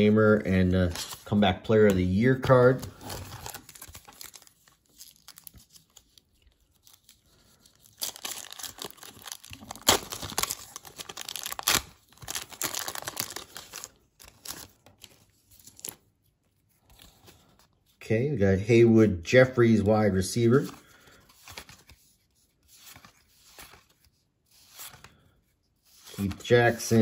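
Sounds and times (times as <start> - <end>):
wrapper crinkling: 2.9 - 16.0
wrapper ripping: 2.9 - 16.0.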